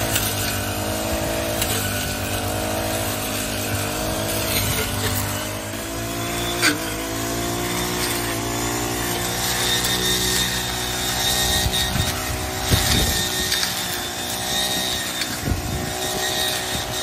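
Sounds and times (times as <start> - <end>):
brush cutter running: 0.0 - 17.0.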